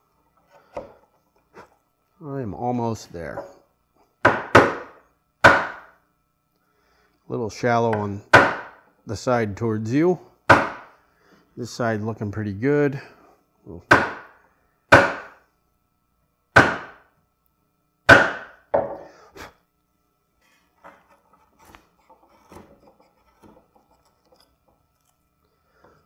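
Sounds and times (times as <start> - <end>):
chisel scraping wood: 20.6 - 26.0.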